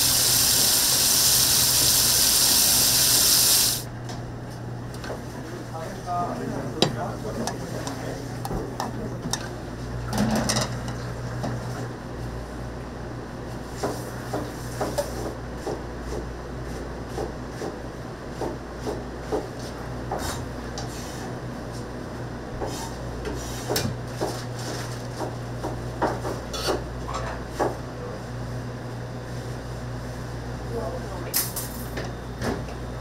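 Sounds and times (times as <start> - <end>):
utensils clinking on pots and dishes: 10.1 - 11.0, 26.5 - 27.4, 31.3 - 32.0.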